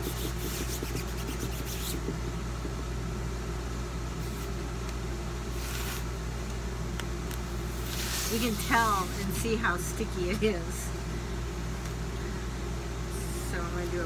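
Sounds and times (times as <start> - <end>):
hand rubbing stencil on cloth: 0.0 - 2.2, 5.5 - 6.1, 7.7 - 9.4
low background hum: 0.0 - 14.0.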